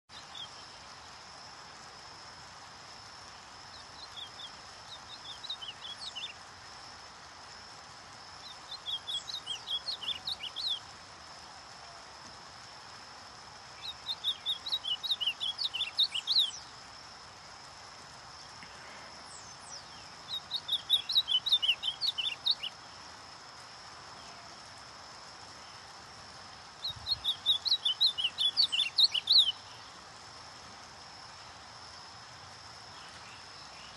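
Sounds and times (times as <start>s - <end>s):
bird singing whistled notes: 3.8s - 6.4s, 8.4s - 10.9s, 13.8s - 16.7s, 19.3s - 22.8s, 26.8s - 29.9s.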